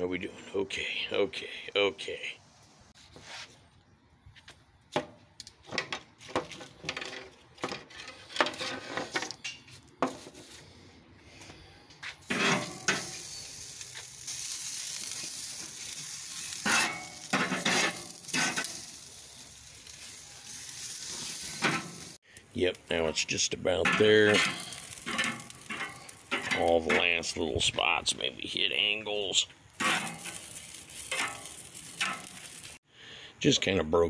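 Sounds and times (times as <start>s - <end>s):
steaks sizzling on grill: 12.2s - 27.7s, 28.9s - 32.8s
metal tongs clicking on grill grate: 23.8s - 26.6s, 29.8s - 32.6s.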